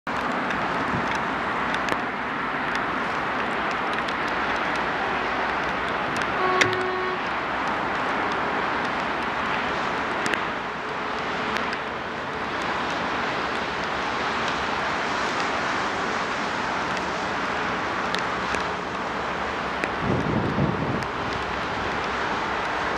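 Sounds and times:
steady rushing noise: 0:00.1 - 0:22.9
distant locomotive horn toot: 0:06.3 - 0:07.4.

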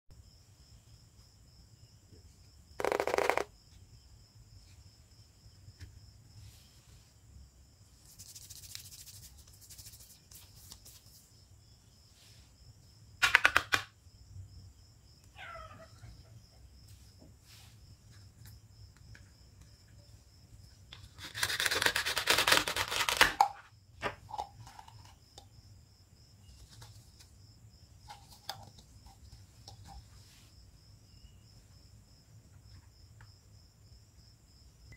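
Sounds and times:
plastic toy clacks: 0:02.8 - 0:03.5, 0:13.2 - 0:13.9
velcro tearing: 0:21.2 - 0:23.4.

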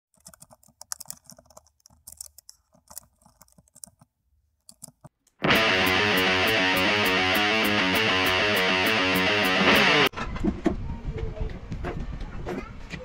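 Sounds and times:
typing on computer keyboard: 0:00.1 - 0:05.1
electric guitar music: 0:05.4 - 0:10.1.

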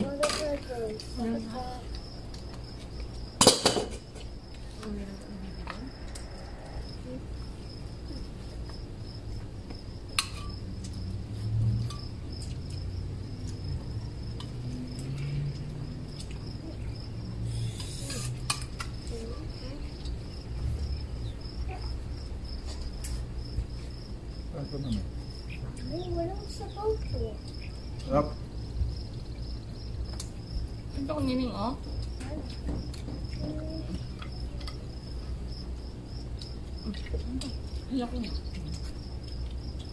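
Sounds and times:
crickets chirping: 0:00.0 - 0:39.9
cutlery and dishes clinking: 0:03.4 - 0:04.1.

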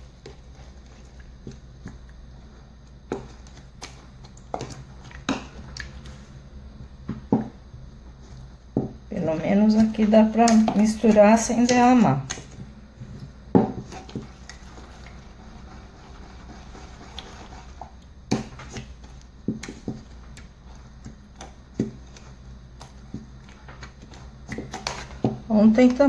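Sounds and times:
pestle scraping wet paste: 0:09.4 - 0:25.5.

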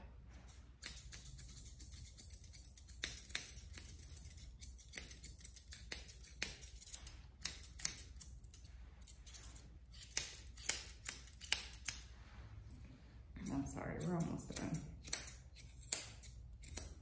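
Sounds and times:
grooming shears snipping hair: 0:00.4 - 0:12.1, 0:13.4 - 0:17.0.

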